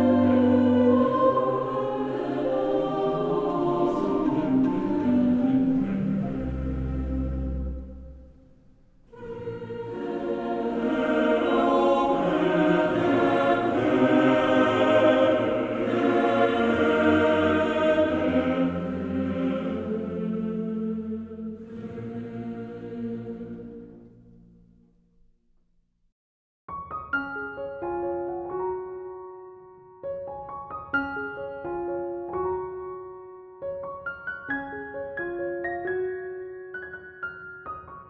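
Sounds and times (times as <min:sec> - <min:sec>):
slow choir-like chords: 0:00.0 - 0:24.7.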